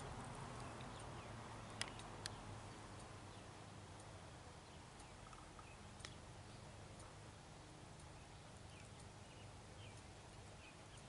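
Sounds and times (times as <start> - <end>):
faint steady background noise: 0.0 - 11.0
sharp clicks: 1.7 - 2.4, 5.0 - 6.2.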